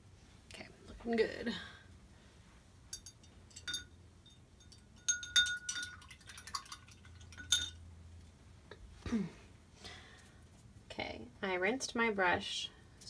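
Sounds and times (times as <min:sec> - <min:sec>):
paintbrush clinking against cup: 0:02.9 - 0:07.8.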